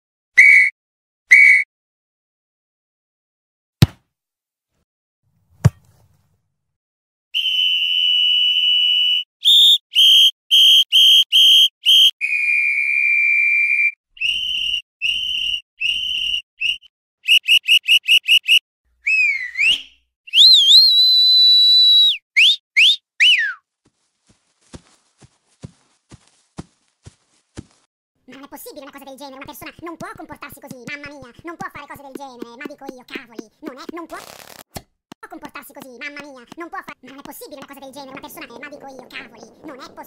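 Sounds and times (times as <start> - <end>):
referee's whistle blasts: 0.4 - 0.7, 1.3 - 1.7.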